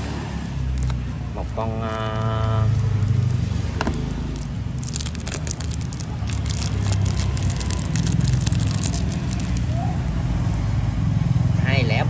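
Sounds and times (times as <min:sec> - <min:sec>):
street traffic rumble: 0:00.0 - 0:12.0
crackling and scraping: 0:00.7 - 0:09.8.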